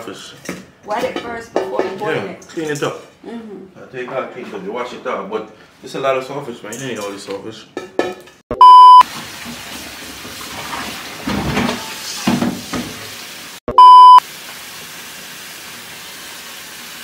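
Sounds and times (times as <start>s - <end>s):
loud flat bleeps: 8.6s - 9.0s, 13.7s - 14.2s
water running from tap: 9.0s - 13.6s, 14.2s - 17.0s.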